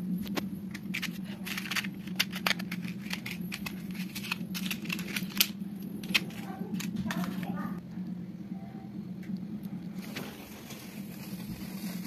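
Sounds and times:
steady low hum: 0.0s - 12.0s
match scratching on matchbox: 0.8s - 7.4s.

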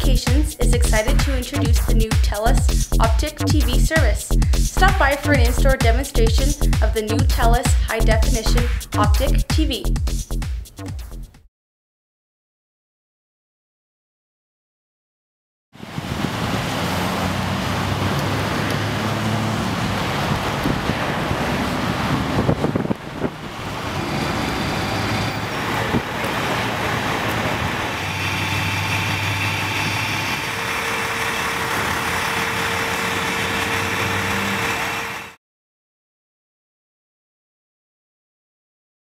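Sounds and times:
road traffic: 15.8s - 35.4s.

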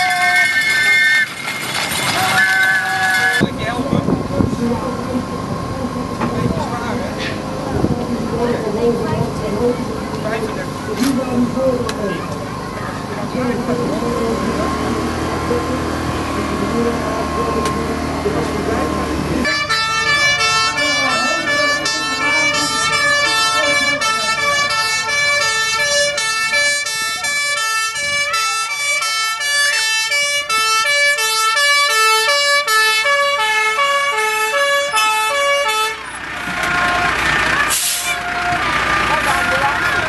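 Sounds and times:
two-tone fire engine siren: 0.0s - 3.6s, 14.4s - 40.0s
truck engine running: 0.0s - 40.0s
short hiss: 37.7s - 38.2s.

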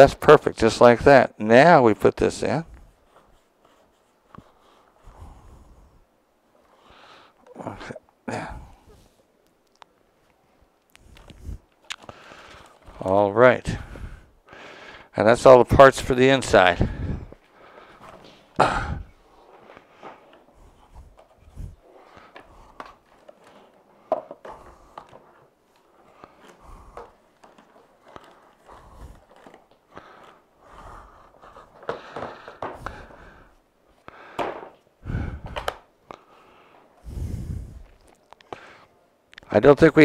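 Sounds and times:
plastic parts knocking and clunking: 22.2s - 30.4s, 31.4s - 33.3s, 34.3s - 35.9s.

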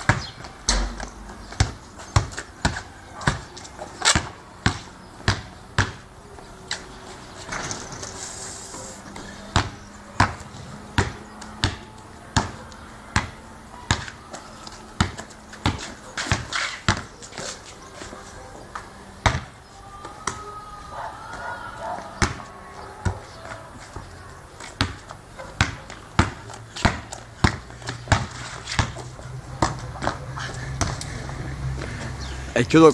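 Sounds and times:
basketball bouncing on paving: 0.0s - 6.8s, 9.1s - 17.6s, 18.6s - 19.6s, 22.0s - 32.2s.

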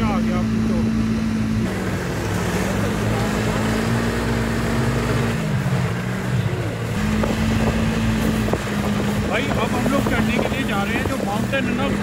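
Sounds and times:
snowmobile engine running: 0.0s - 12.0s.

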